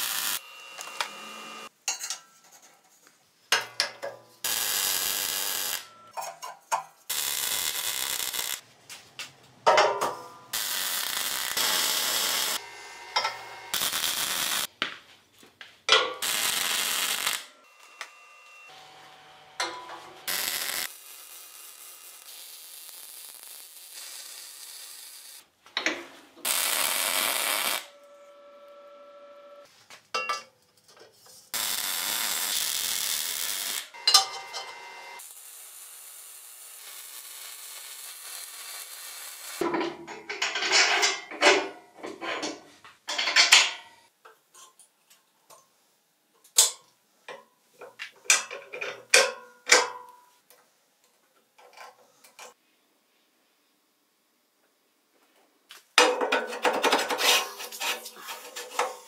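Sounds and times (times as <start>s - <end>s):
steady hiss bursts: 0.0s - 0.4s
sharp metal knocks and clanks: 15.9s - 16.3s, 19.6s - 20.1s.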